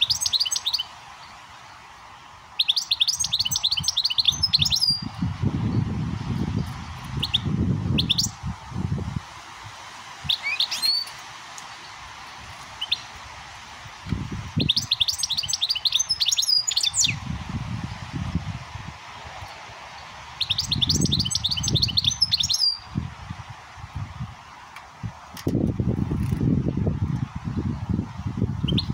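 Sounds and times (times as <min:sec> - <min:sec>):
goldfinch twittering song: 0:00.0 - 0:01.4, 0:02.6 - 0:05.9, 0:06.6 - 0:08.4, 0:10.3 - 0:12.0, 0:12.8 - 0:13.1, 0:14.6 - 0:17.2, 0:20.0 - 0:22.9, 0:28.6 - 0:28.9.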